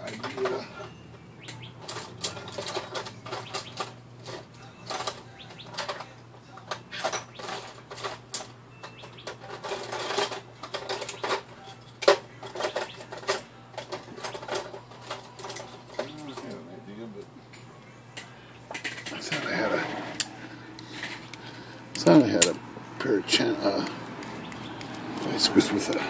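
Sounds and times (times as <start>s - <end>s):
metal hand tools clinking: 0.0s - 6.1s, 6.7s - 16.7s, 20.9s - 22.6s.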